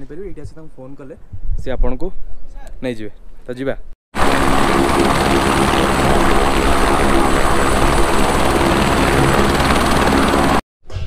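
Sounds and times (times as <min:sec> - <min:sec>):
helicopter rotor beat: 0:04.2 - 0:10.6
high turbine whine: 0:04.2 - 0:10.6.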